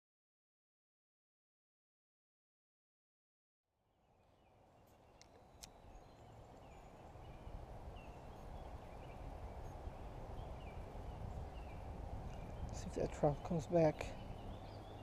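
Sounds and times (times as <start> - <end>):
faint bird chirps: 4.1 - 15.0.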